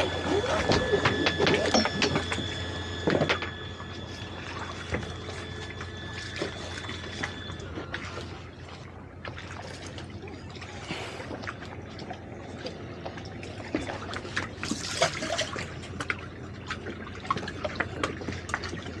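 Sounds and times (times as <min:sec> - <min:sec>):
low engine hum: 0:00.0 - 0:19.0
water lapping against boat hulls: 0:00.0 - 0:19.0.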